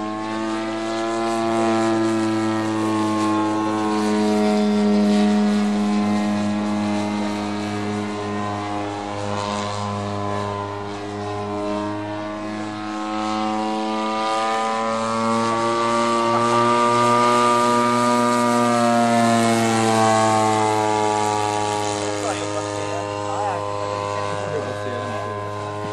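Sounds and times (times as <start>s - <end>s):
model plane engine droning: 0.0s - 25.9s.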